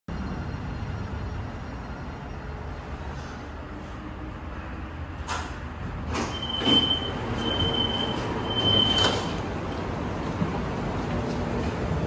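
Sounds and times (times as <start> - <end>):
tram engine rumble: 0.1 - 12.0
tram doors sliding open: 0.2 - 12.0
high warning beeps: 6.3 - 9.3.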